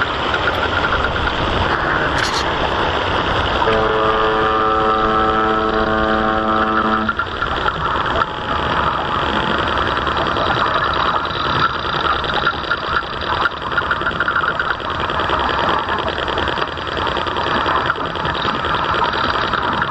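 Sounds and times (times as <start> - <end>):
model boat motor running: 0.0 - 19.9
horn long steady note: 3.6 - 9.6.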